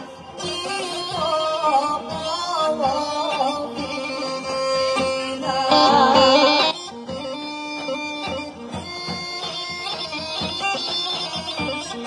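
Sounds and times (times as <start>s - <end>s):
bagpipes drone: 0.0s - 12.0s
drum beat: 0.0s - 12.0s
woman singing: 1.0s - 6.8s.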